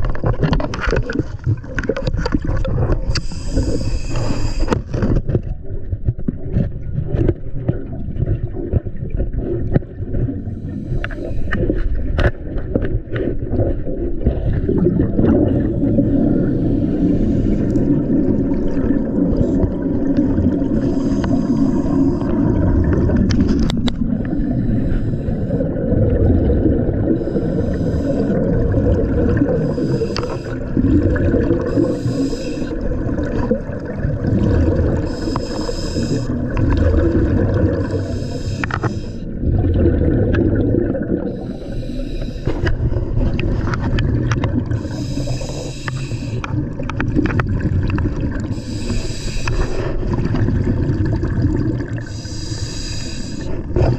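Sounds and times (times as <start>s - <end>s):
clicks and knocks on hull: 0.0s - 3.3s
low rumble of moving water: 0.0s - 53.9s
scuba regulator breathing: 3.0s - 5.1s, 10.4s - 11.9s, 15.4s - 18.1s, 20.6s - 22.6s, 24.2s - 25.9s, 27.0s - 32.9s, 34.8s - 39.4s, 41.2s - 43.0s, 44.7s - 46.6s, 48.4s - 50.4s, 52.0s - 53.9s.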